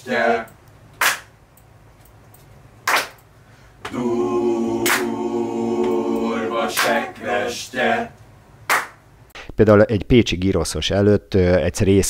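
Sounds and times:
group of voices singing a cappella: 0.0s - 0.6s, 3.9s - 8.2s
sharp hand claps: 1.0s - 1.3s, 2.8s - 3.2s, 4.8s - 5.1s, 8.7s - 9.0s.

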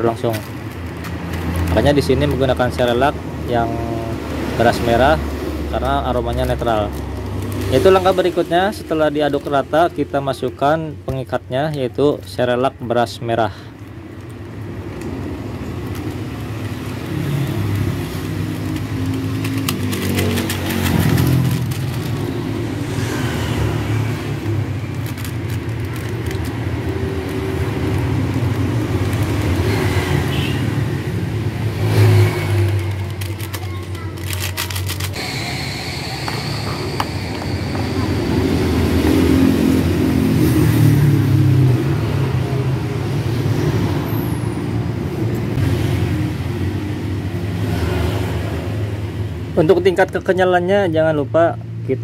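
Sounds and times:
plastic sachets crinkling and tearing: 0.0s - 3.1s, 4.4s - 12.7s, 13.7s - 35.3s
vehicle engine droning: 14.7s - 46.7s.

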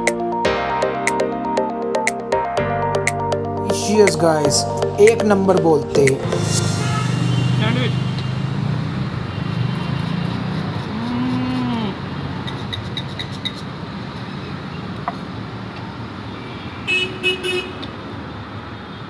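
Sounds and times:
car horns honking: 6.3s - 10.0s, 16.4s - 17.8s
vehicle engines running: 6.3s - 16.3s.

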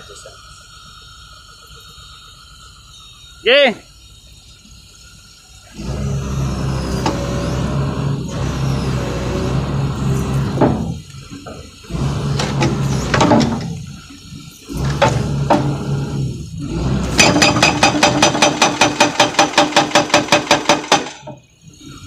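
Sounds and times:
hydraulic breaker hammer pounding: 5.8s - 13.9s, 14.7s - 21.4s.

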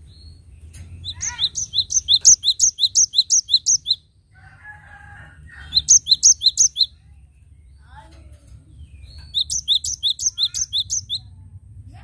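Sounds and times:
bird singing whistled notes: 0.0s - 4.0s, 5.6s - 7.0s, 8.8s - 11.3s.

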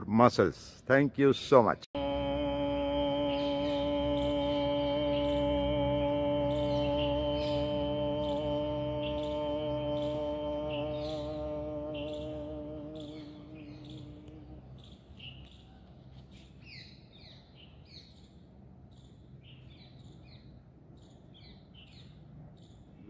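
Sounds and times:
faint low hum: 0.9s - 23.0s
small birds chirping: 2.7s - 23.0s.

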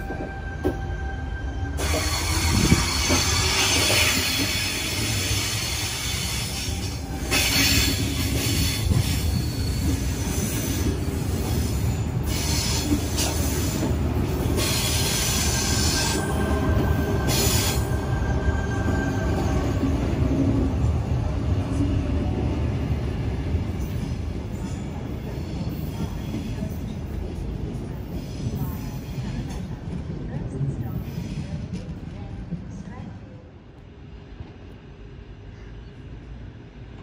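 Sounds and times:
train wheel squeal: 0.0s - 13.9s, 14.6s - 20.3s
electric train rumbling: 0.0s - 37.0s.

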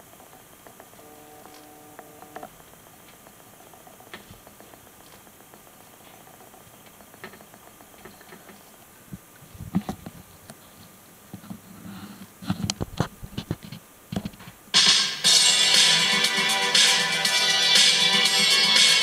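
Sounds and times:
music through tv speaker: 14.8s - 19.0s.

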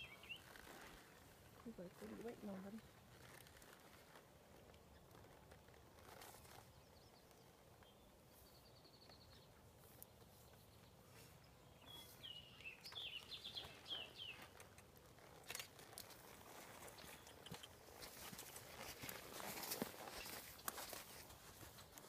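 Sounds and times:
songbird singing: 0.0s - 3.0s, 6.4s - 14.9s, 15.6s - 21.0s.

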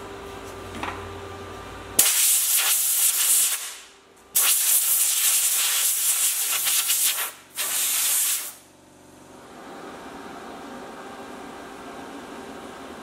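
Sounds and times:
compressed air blow gun hissing: 4.4s - 8.6s.

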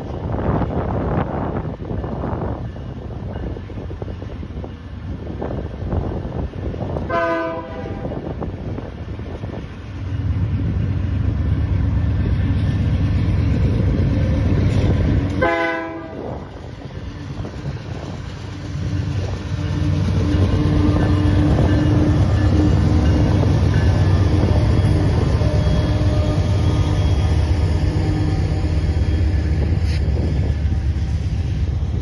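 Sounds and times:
locomotive air horn blasts: 7.1s - 8.2s, 15.4s - 16.4s.

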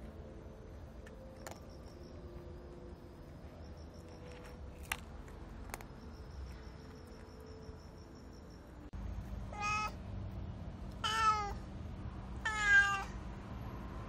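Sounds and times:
insect chirping: 0.0s - 8.9s
cat crunching dry kibble: 4.3s - 5.9s.

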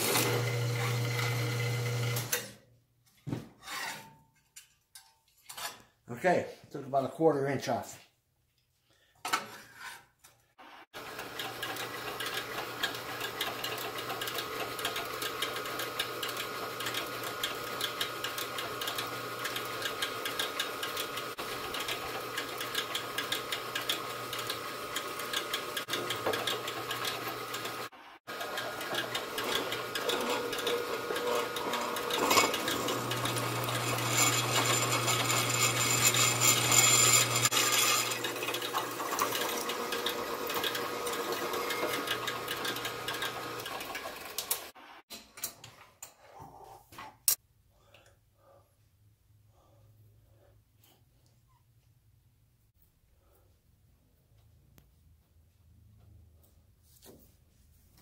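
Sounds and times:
drill press drilling metal: 0.0s - 2.5s, 11.0s - 44.7s.

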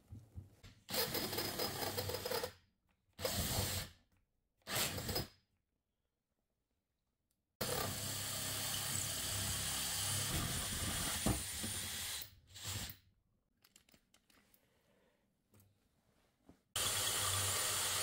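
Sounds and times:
drill hole saw cutting plywood: 7.6s - 13.0s, 16.8s - 18.0s.

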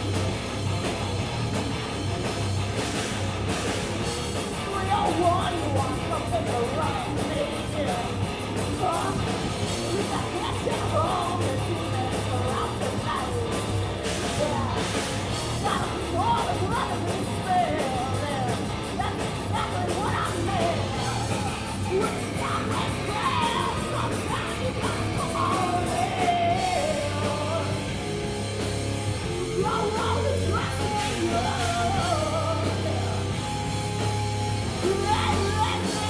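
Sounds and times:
drums: 0.0s - 36.0s
electric guitars: 0.0s - 36.0s
woman singing: 4.5s - 13.6s, 14.2s - 27.8s, 29.3s - 33.4s, 34.8s - 36.0s.

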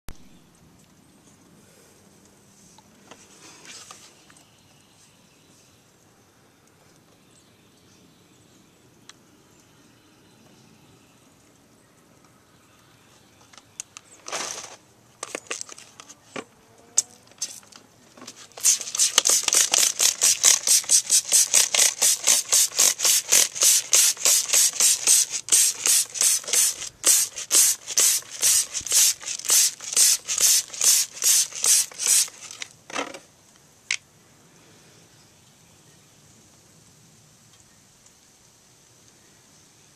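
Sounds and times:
spray bottle squirting: 18.3s - 32.7s
spray bottle trigger clicks: 18.6s - 32.7s.

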